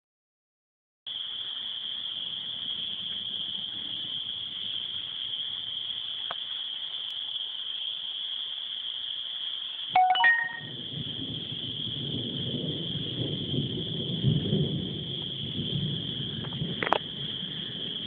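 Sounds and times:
electronic phone alert chime: 10.0s - 10.8s.

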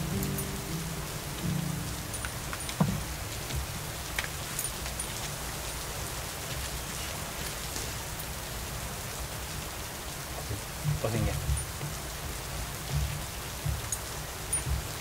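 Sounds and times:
rain drops ticking on surface: 0.0s - 15.0s.

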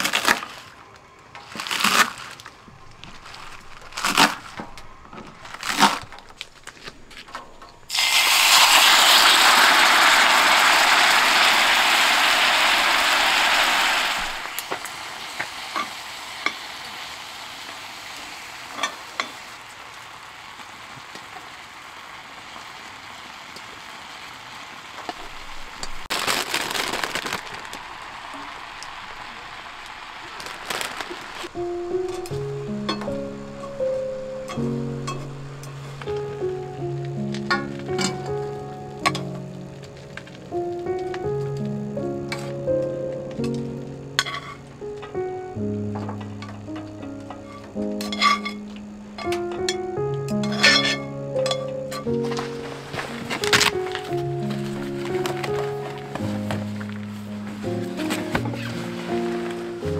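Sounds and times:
food sizzling in hot oil: 7.8s - 39.7s, 46.5s - 56.7s.

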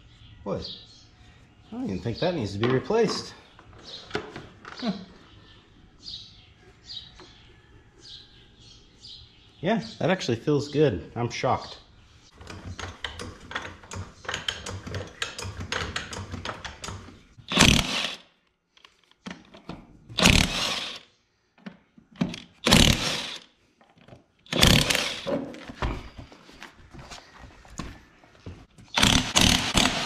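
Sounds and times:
impact wrench clicking and hammering: 12.4s - 18.2s, 20.2s - 21.0s, 22.2s - 23.4s, 24.5s - 25.5s, 28.9s - 30.0s.

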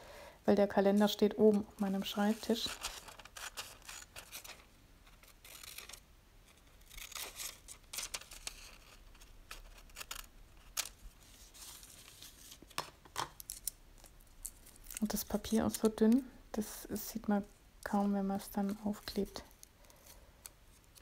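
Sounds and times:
paper rustling: 1.0s - 15.9s.

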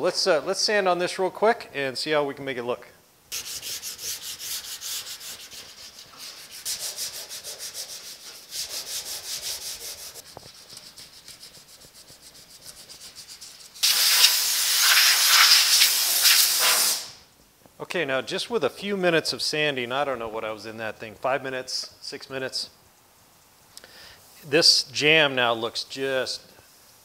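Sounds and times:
sandpaper scraping on metal: 3.3s - 17.0s
air blow gun hissing: 13.8s - 17.2s.

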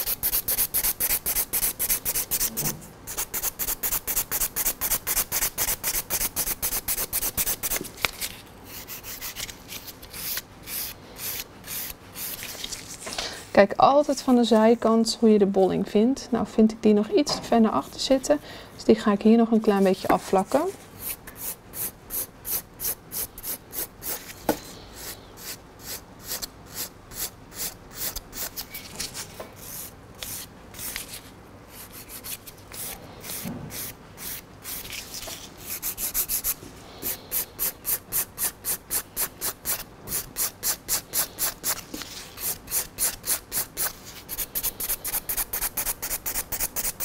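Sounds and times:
nail file rasping: 42.4s - 47.0s.

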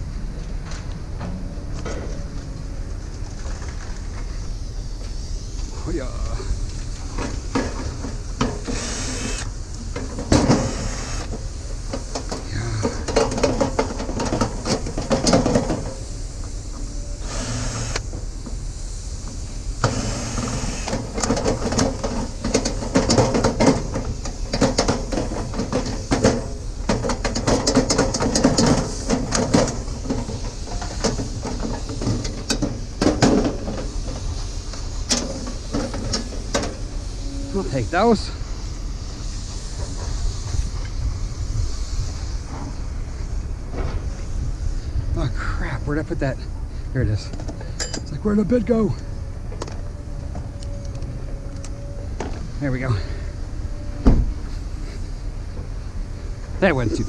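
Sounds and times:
drill-driver whirring: 8.7s - 9.5s, 17.2s - 18.0s.

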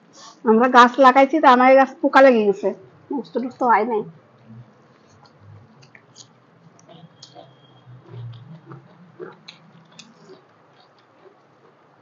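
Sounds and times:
mouths chewing: 4.3s - 12.0s
small wet clicks and smacks: 4.4s - 7.4s, 8.0s - 11.8s.

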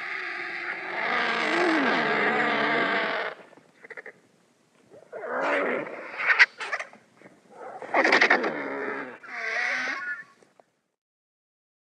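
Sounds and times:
dinosaur calls: 0.0s - 4.1s, 7.7s - 10.3s.

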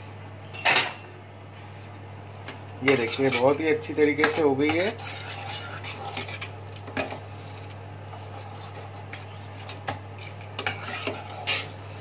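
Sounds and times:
steady low hum: 0.0s - 12.0s
metal ladle stirring thick dal: 4.3s - 6.5s, 8.1s - 11.8s.

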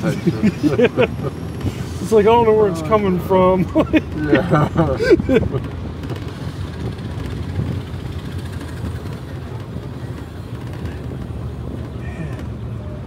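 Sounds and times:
road and wind noise: 0.0s - 13.0s.

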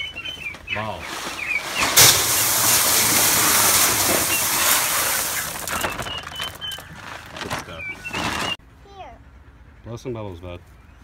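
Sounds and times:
seeds pouring into metal can: 1.1s - 6.8s.

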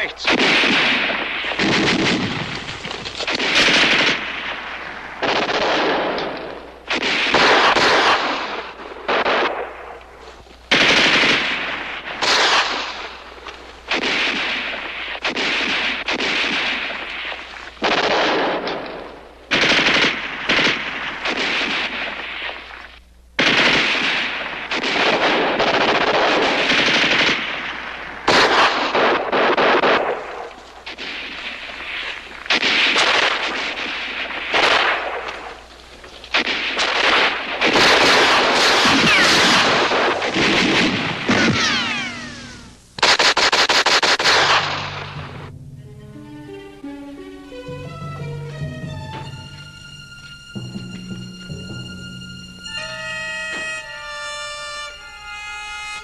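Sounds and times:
automatic gunfire bursts: 0.0s - 9.8s, 10.7s - 13.2s, 13.8s - 22.6s, 23.4s - 35.6s, 36.3s - 45.2s.

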